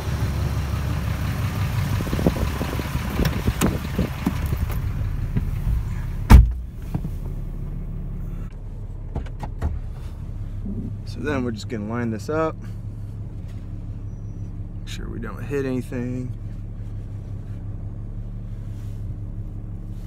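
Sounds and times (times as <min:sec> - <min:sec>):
pickup truck engine idling: 0:00.0 - 0:20.0
wind buffeting microphone: 0:01.9 - 0:04.8
truck door slamming: 0:06.3 - 0:06.7
knocks entering cab: 0:06.3 - 0:07.1.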